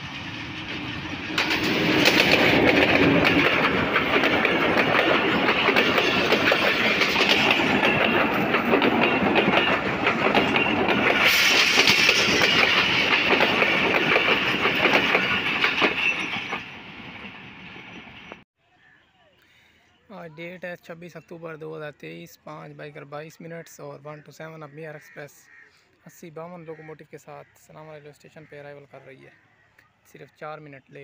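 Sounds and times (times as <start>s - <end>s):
passing train rumble: 0.0s - 18.4s
train wheels clattering over rail joints: 0.2s - 18.4s.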